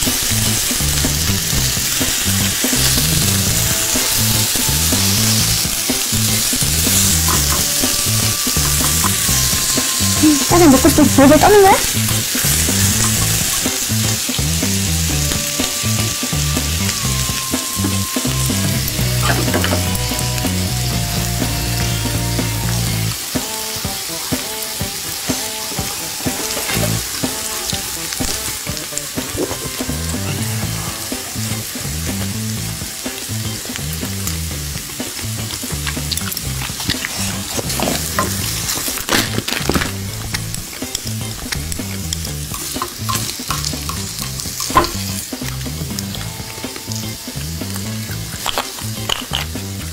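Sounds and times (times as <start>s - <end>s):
beef sizzling on grill pan: 0.0s - 49.9s
soft music with bass line: 0.0s - 49.9s
metal tongs and scissors clicking: 48.4s - 49.5s.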